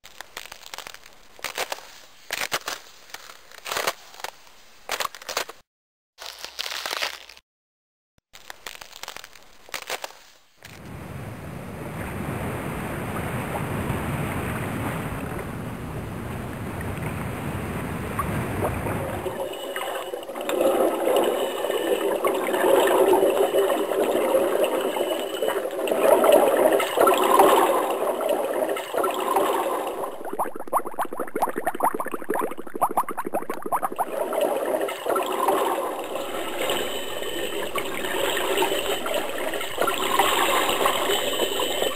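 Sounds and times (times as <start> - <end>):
muffled underwater gurgling: 14.5 - 41.9
water sloshing: 18.5 - 41.9.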